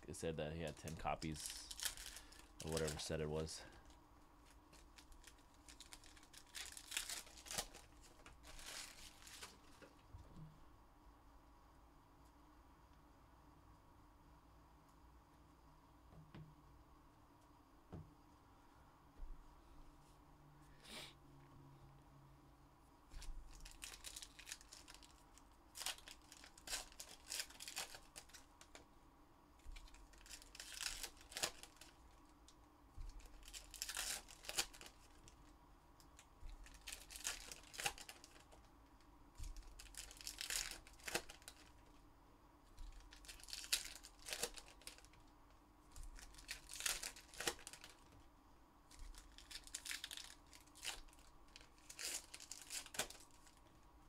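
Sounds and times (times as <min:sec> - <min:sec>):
card pack wrappers tearing and crinkling: 0:00.5 - 0:09.8, 0:23.2 - 0:28.8, 0:29.7 - 0:32.1, 0:33.0 - 0:35.4, 0:36.2 - 0:38.6, 0:39.4 - 0:41.9, 0:42.9 - 0:45.3, 0:46.0 - 0:48.1, 0:48.9 - 0:53.6.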